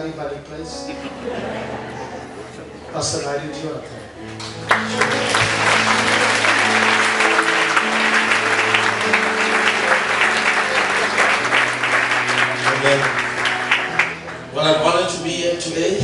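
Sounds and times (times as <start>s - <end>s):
music with long held chords: 0.2s - 2.9s, 3.8s - 16.0s
congregation clapping: 4.3s - 15.2s.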